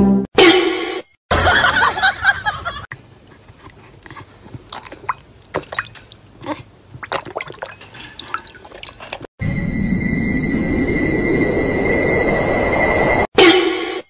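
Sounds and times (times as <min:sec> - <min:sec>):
dog lapping water: 0:03.2 - 0:09.3.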